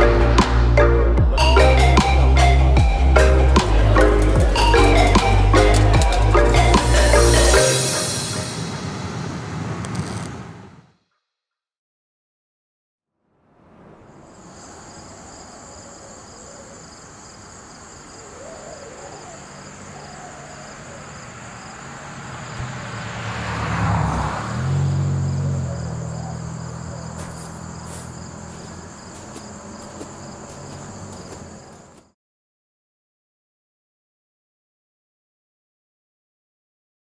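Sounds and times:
vehicle passing: 0:02.4 - 0:11.0, 0:13.3 - 0:32.1
insects buzzing: 0:14.1 - 0:32.1.

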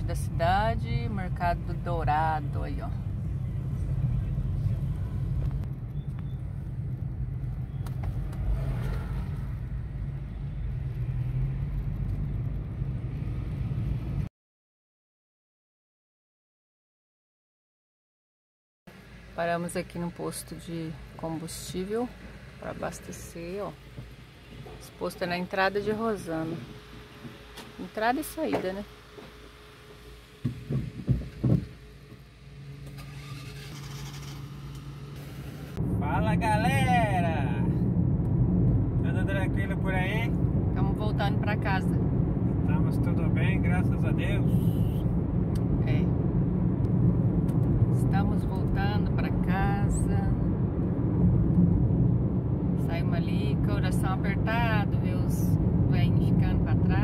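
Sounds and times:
car engine and road rumble: 0:00.0 - 0:14.3, 0:18.9 - 0:57.0.

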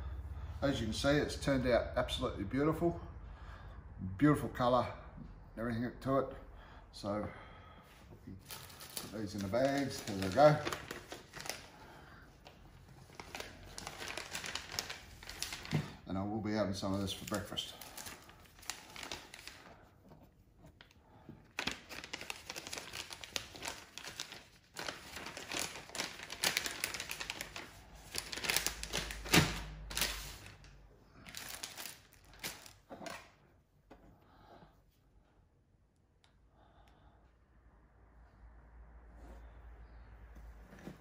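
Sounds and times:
plastic bags crinkling: 0:08.3 - 0:16.0, 0:16.9 - 0:19.9, 0:21.4 - 0:33.3.

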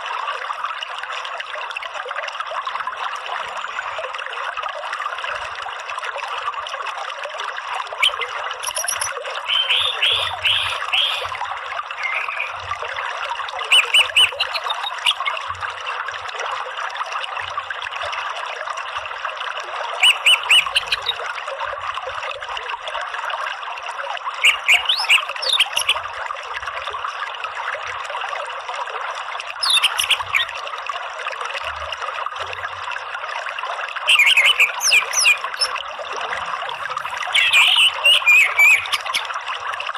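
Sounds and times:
flowing stream: 0:00.0 - 0:39.9
thrush chirping: 0:08.0 - 0:11.3, 0:12.0 - 0:12.6.

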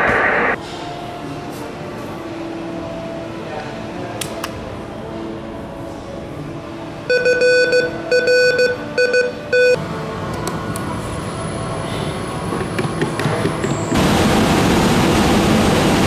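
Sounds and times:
morse code buzzer beeps: 0:07.1 - 0:09.8
fan rushing with high whine: 0:13.9 - 0:16.0.

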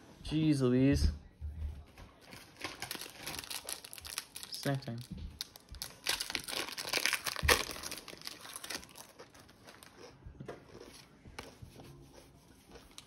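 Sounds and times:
foil pack tearing and crinkling: 0:02.3 - 0:09.9.

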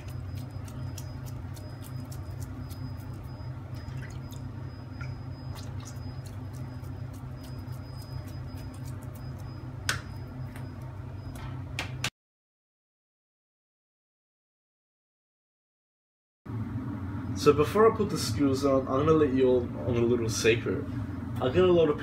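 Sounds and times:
wet hands squishing minced meat: 0:00.0 - 0:04.6, 0:05.4 - 0:09.8
steady low hum: 0:00.0 - 0:12.1, 0:16.5 - 0:22.0.

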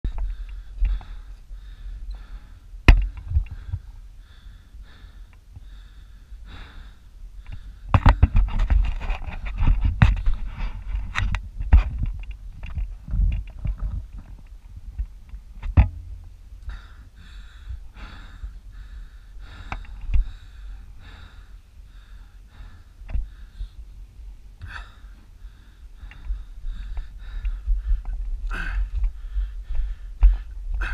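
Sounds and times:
wind buffeting microphone: 0:07.5 - 0:20.4, 0:25.9 - 0:30.9.

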